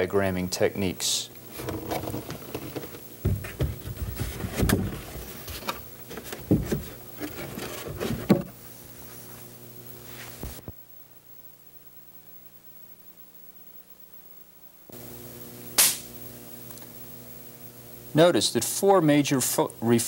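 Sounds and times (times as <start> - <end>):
steady low hum: 0.0 - 20.0
cardboard knocking on wood frame: 1.7 - 5.2.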